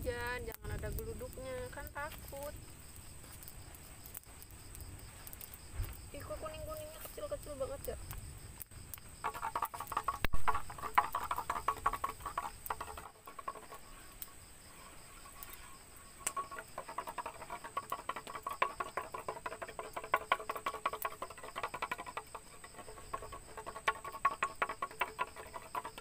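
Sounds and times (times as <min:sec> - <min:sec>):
knife scraping bamboo tube: 0:09.2 - 0:26.0.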